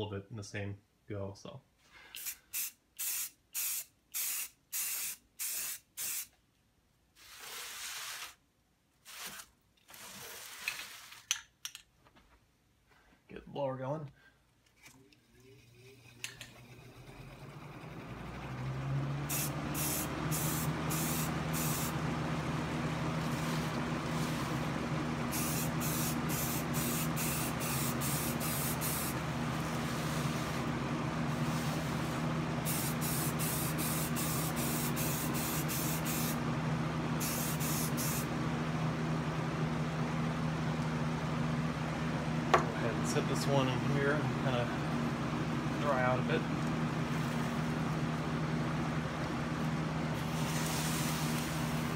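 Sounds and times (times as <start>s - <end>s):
aerosol spray hissing: 2.2s - 6.3s, 19.3s - 22.0s, 25.3s - 29.2s, 31.5s - 36.4s, 37.2s - 38.3s
exhaust fan humming: 12.9s - 51.9s.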